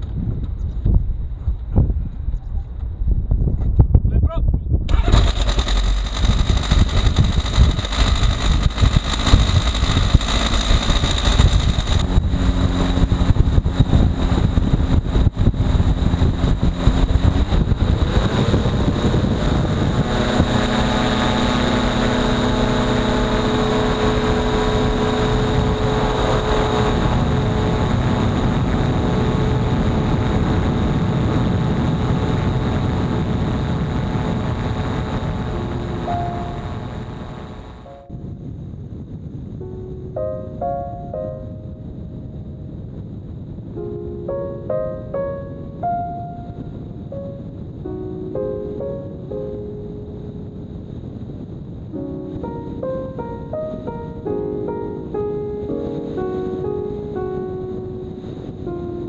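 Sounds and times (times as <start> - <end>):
microlight engine and propeller: 4.9 - 39.6.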